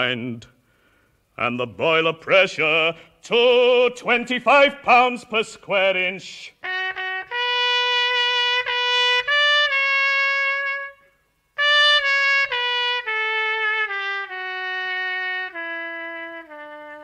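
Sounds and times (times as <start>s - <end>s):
brass instrument playing held notes: 6.6s - 17.0s.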